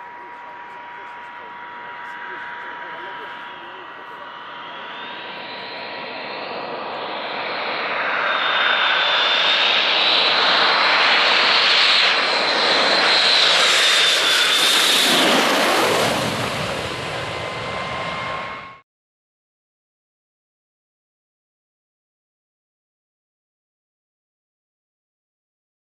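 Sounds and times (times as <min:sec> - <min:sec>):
jet engine passing overhead: 0:00.0 - 0:18.8.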